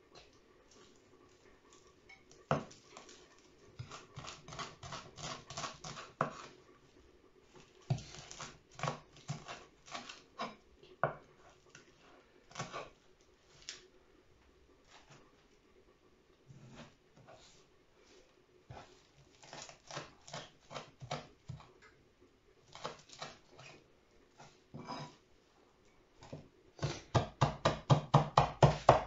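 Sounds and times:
knife chopping on wooden board: 2.5s - 2.8s, 3.8s - 6.5s, 7.9s - 11.3s, 12.5s - 12.9s, 18.7s - 21.7s, 22.7s - 23.7s, 26.2s - 29.0s.

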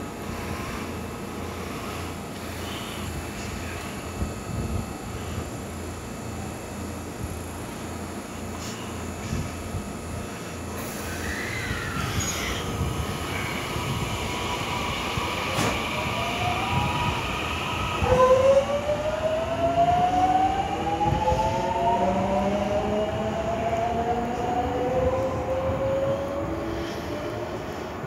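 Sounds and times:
train rumbling on track: 0.0s - 28.0s
electric train motors whining: 10.5s - 27.4s.

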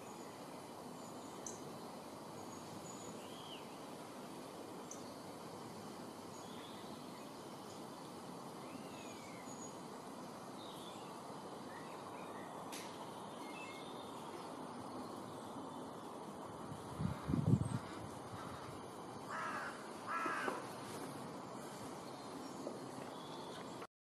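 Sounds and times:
outdoor background hiss: 0.0s - 23.9s
small birds chirping and whistling: 10.6s - 16.0s.

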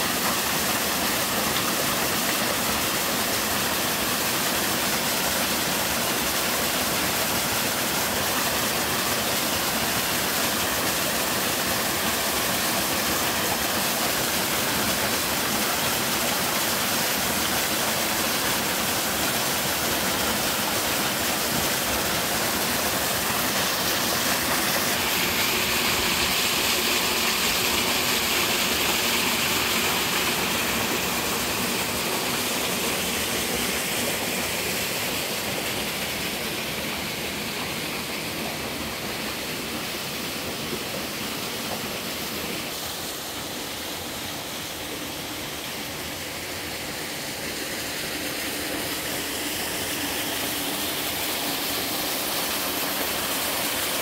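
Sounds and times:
waterfall splashing onto rocks: 0.0s - 36.5s, 48.0s - 54.0s.

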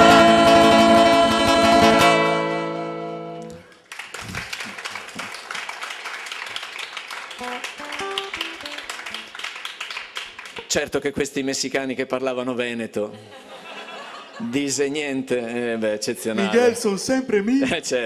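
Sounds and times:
men singing: 0.0s - 2.2s
acoustic guitar: 0.0s - 4.4s, 7.4s - 9.3s.

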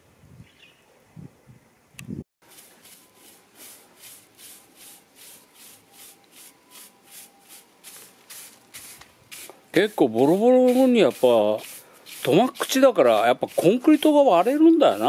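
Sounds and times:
broom sweeping grit on concrete: 2.4s - 15.0s.

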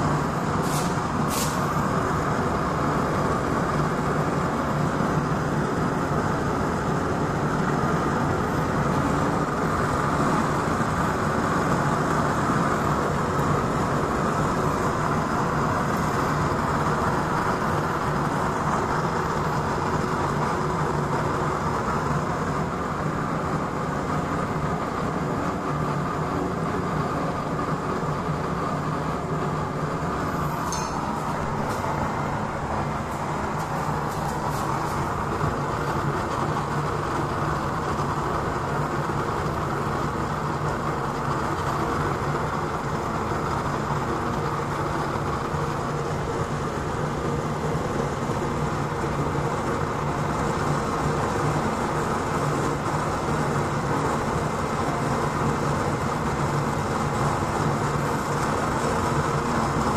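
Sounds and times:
burner flame rushing rumble: 0.0s - 59.9s.

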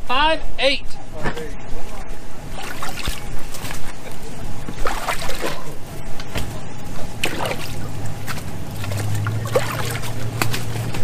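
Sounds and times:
steady low hum: 0.0s - 11.0s
water splashing in a tub: 2.5s - 3.8s, 4.8s - 5.8s, 7.2s - 10.7s.

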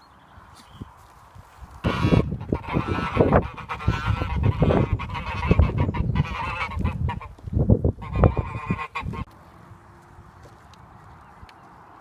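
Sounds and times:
geese honking: 1.8s - 7.4s, 8.0s - 9.3s.

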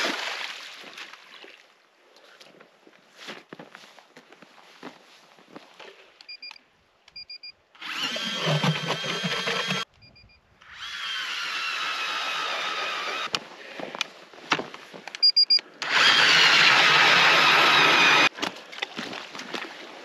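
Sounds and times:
ice auger motor whining: 7.8s - 9.9s, 10.6s - 13.4s, 15.8s - 18.3s
short high beeps: 15.2s - 15.6s.

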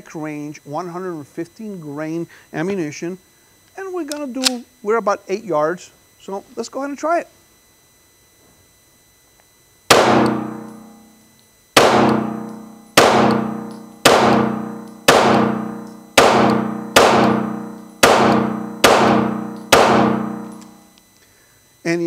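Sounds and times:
pistol shots echoing indoors: 9.9s - 11.0s, 11.8s - 20.9s.

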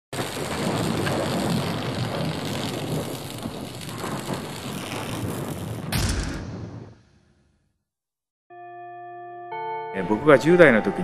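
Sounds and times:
crackling electrical noise: 0.1s - 7.0s
low thunder rumble: 0.2s - 7.0s.

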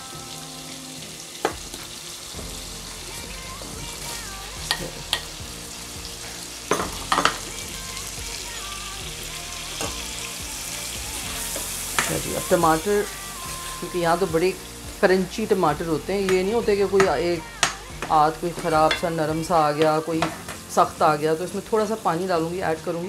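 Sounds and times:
spices sizzling in a frying pan: 0.0s - 23.0s.

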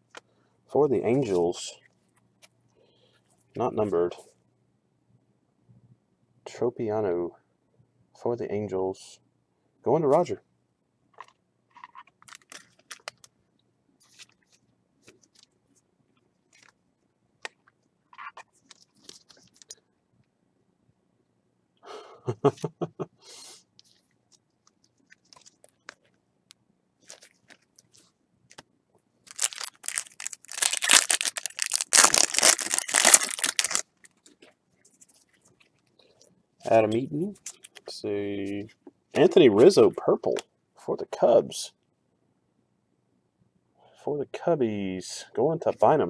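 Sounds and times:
foil wrapper crinkling and tearing: 11.9s - 13.3s, 25.0s - 26.1s, 27.0s - 28.0s, 29.2s - 34.4s
faint clicks and rustles: 14.0s - 20.4s, 23.7s - 28.7s, 33.8s - 36.4s.

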